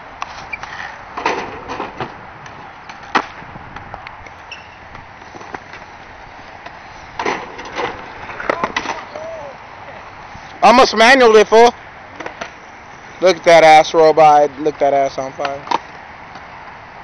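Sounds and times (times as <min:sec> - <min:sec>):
skateboard wheels rolling on asphalt: 0:00.0 - 0:17.0
skateboard clacking on pavement: 0:00.6 - 0:09.3, 0:15.4 - 0:16.5.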